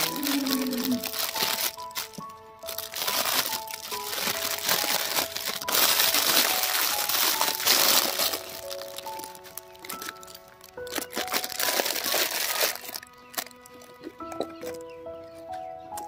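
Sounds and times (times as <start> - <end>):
plastic bag crinkling: 0.0 - 14.8
background music with held notes: 0.0 - 16.0.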